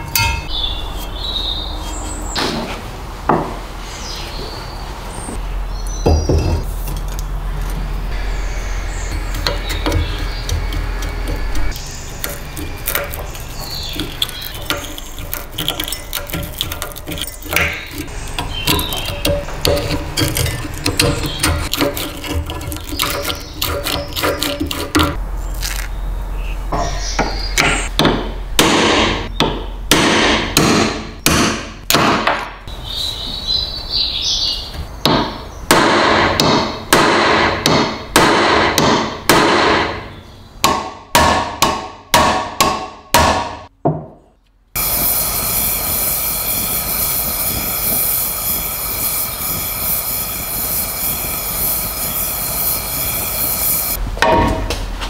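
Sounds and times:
hammer striking metal punch: 0:00.0 - 0:00.5, 0:27.6 - 0:32.4, 0:35.1 - 0:40.0, 0:40.6 - 0:44.1, 0:54.2 - 0:54.8
gas torch flame hissing: 0:44.8 - 0:54.0.

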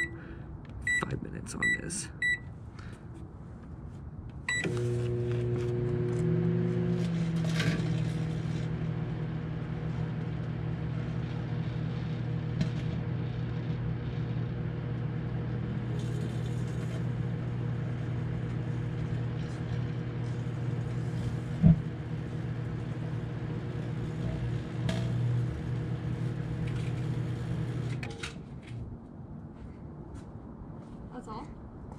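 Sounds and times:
microwave oven humming: 0:00.0 - 0:00.3, 0:04.5 - 0:28.2.

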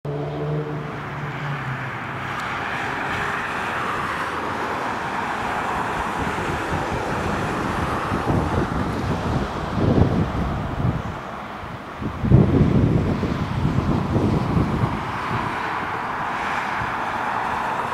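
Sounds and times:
wind buffeting microphone: 0:02.6 - 0:17.9.

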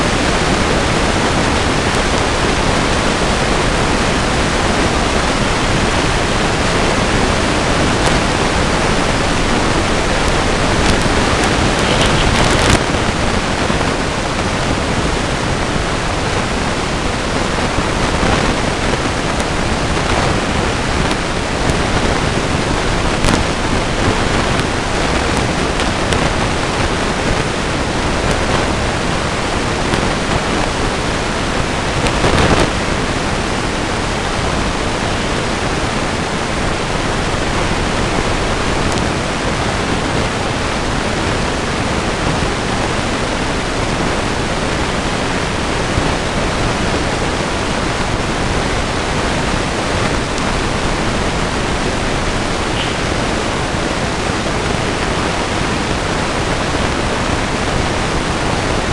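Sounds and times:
microphone self-noise hiss: 0:00.0 - 0:58.9.

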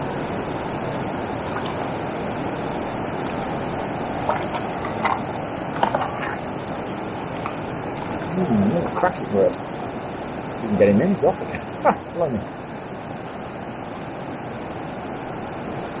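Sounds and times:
wind on microphone: 0:00.0 - 0:08.9
water rushing over a weir: 0:00.0 - 0:16.0.

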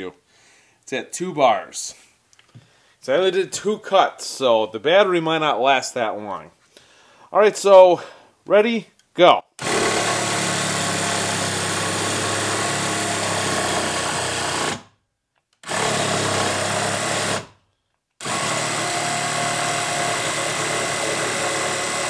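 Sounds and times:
reciprocating saw cutting wood: 0:09.6 - 0:14.8, 0:15.6 - 0:17.6, 0:18.2 - 0:22.0.

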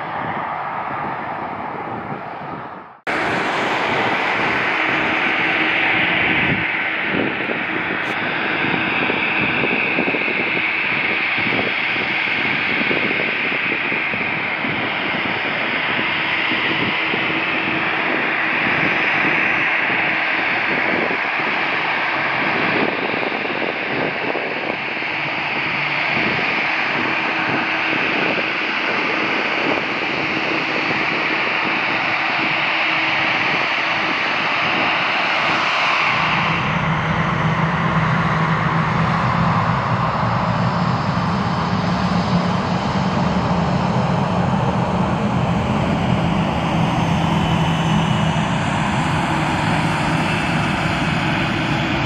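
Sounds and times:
jet engines rushing: 0:00.0 - 0:52.0.

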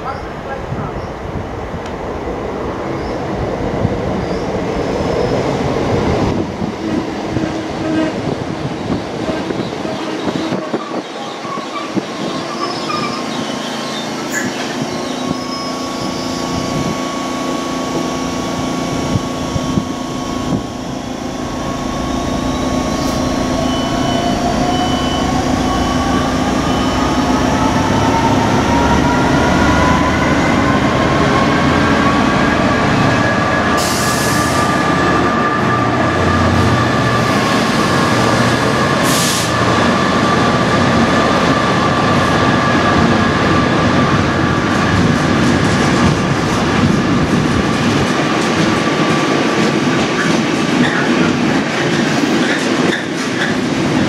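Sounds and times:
diesel locomotive rumble: 0:12.0 - 0:54.0
electric train motor whine: 0:15.2 - 0:33.6
steady high tone: 0:15.3 - 0:33.8.

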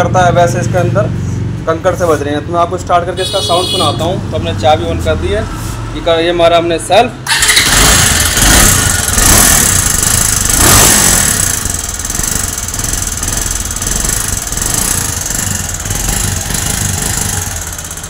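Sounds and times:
motorcycle engine rough idle: 0:07.3 - 0:18.0.

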